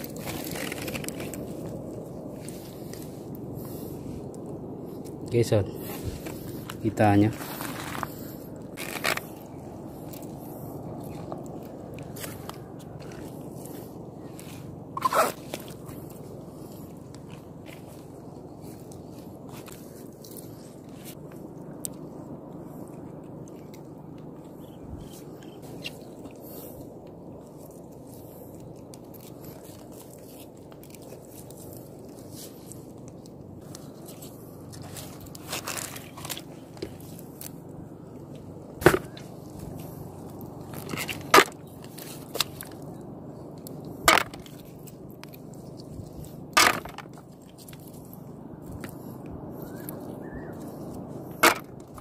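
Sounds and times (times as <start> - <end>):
steady low rush: 0.0 - 52.0
hand rummaging through wet mud: 25.5 - 37.6.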